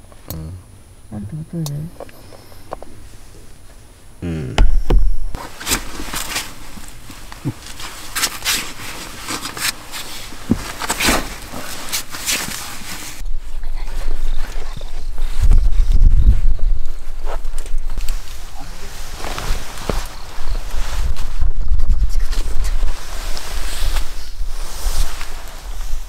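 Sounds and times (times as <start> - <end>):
dog rustling and scuffling: 5.4 - 13.2, 13.9 - 26.0.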